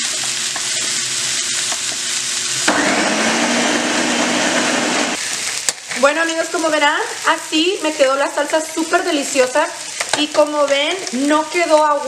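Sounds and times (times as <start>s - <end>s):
sizzle with small clicks: 0.0s - 2.7s, 5.2s - 6.5s, 9.8s - 12.0s
blender humming: 2.5s - 5.2s.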